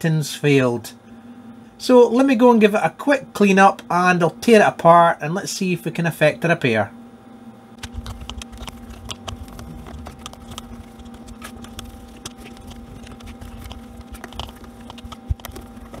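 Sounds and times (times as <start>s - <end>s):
steady low hum: 0.0s - 16.0s
low rubbing rumble: 8.1s - 16.0s.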